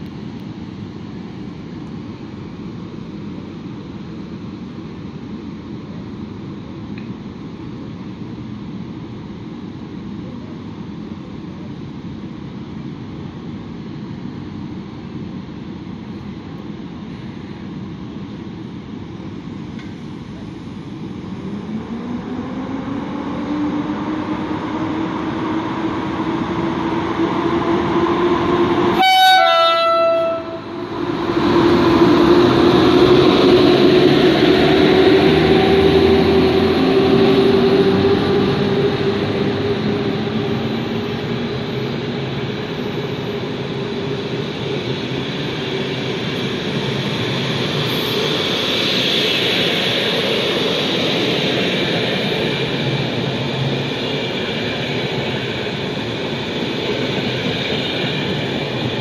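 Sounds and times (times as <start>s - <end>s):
train wheels rushing past: 19.8s - 59.0s
sustained rising tone: 30.6s - 42.1s.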